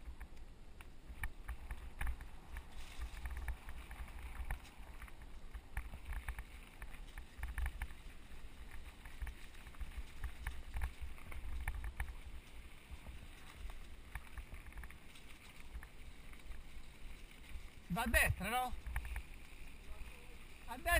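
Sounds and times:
bike clicks and rattles: 0:00.0 - 0:17.9, 0:18.7 - 0:20.9
wind rumbling on microphone: 0:00.0 - 0:20.9.

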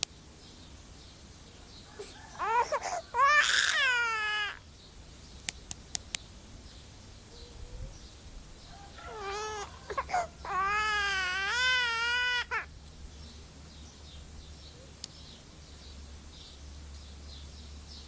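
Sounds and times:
bird mimicking baby crying: 0:01.9 - 0:04.6, 0:09.0 - 0:12.7.

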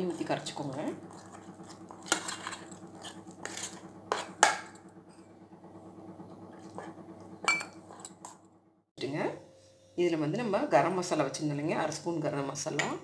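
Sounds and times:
spoon stirring batter in bowl: 0:00.0 - 0:05.2.

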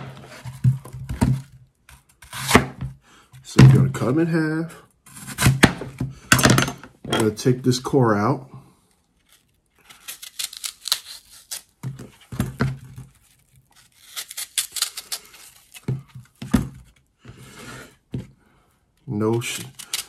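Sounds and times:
knife crunching through apple: 0:01.9 - 0:02.8, 0:09.1 - 0:17.9, 0:19.3 - 0:20.0.

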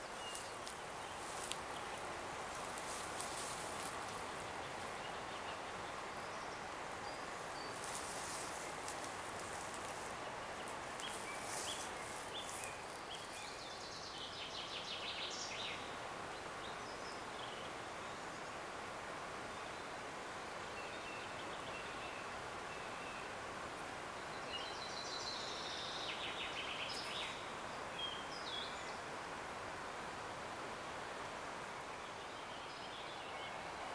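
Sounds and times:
river water flowing: 0:00.0 - 0:16.6, 0:25.4 - 0:33.9
small birds singing: 0:00.0 - 0:18.7, 0:24.1 - 0:29.1.

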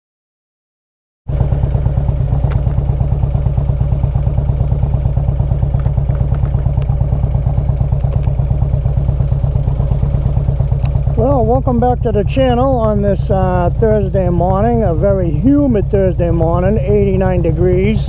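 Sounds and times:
motorcycle engine idling: 0:01.3 - 0:18.0.

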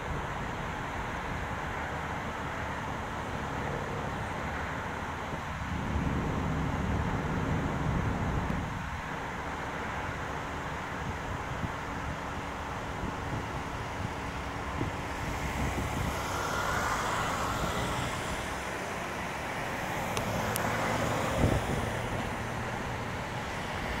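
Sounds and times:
road traffic noise: 0:00.0 - 0:24.0
car passing: 0:12.6 - 0:24.0.

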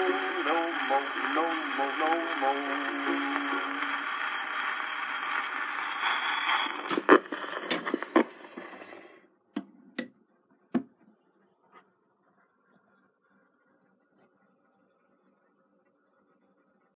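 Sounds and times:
gramophone music: 0:00.0 - 0:06.0
record surface hiss: 0:00.0 - 0:09.2
sharp clicks and scrapes: 0:06.9 - 0:09.2.

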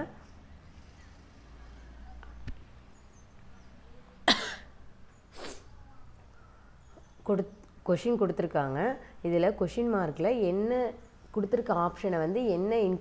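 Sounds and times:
person coughing: 0:04.2 - 0:04.7.

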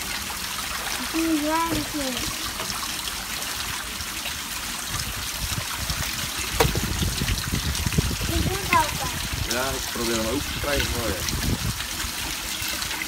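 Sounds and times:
water sloshing and trickling: 0:00.0 - 0:13.0
sharp knock: 0:06.6 - 0:06.9.

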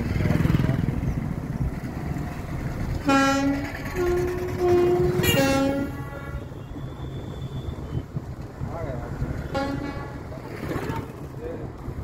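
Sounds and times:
low road rumble: 0:00.0 - 0:12.0
car horn blasts: 0:03.0 - 0:07.8, 0:09.5 - 0:10.3.

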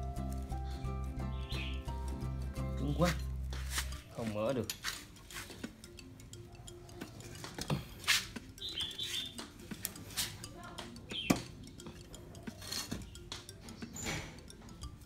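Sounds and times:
spanner clicking on metal bolts: 0:04.2 - 0:15.0
sharp metal knocks: 0:07.0 - 0:15.0.

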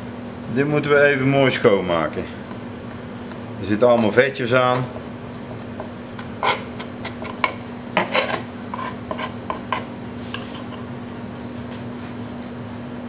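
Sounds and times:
knife scraping cutting board: 0:03.2 - 0:10.9.

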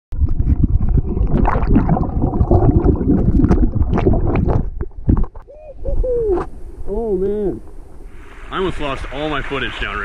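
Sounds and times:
stream water churning and gurgling: 0:00.2 - 0:05.4, 0:07.6 - 0:10.0.

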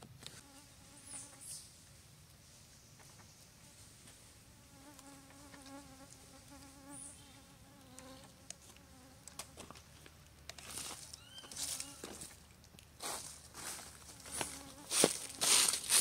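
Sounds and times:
flying insect buzzing: 0:04.5 - 0:09.6, 0:14.2 - 0:15.5.

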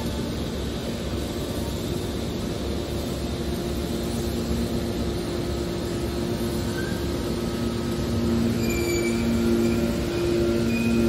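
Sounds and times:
hydraulic pump and motor humming: 0:00.0 - 0:11.0
high-pitched squeals: 0:08.2 - 0:11.0.

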